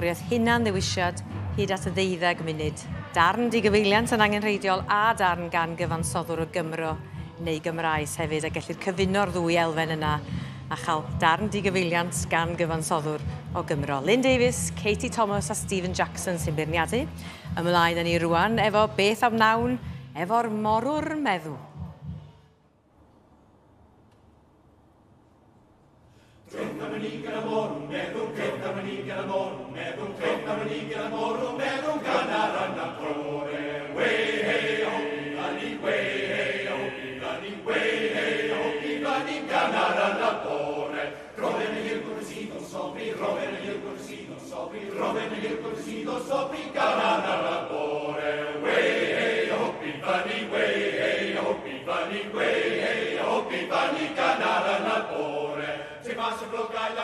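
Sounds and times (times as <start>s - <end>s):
male choir singing in harmony: 26.5s - 57.0s.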